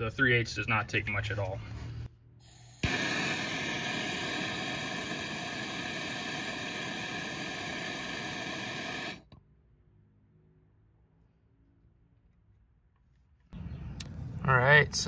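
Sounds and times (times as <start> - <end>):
gas torch flame hissing: 2.5 - 9.3.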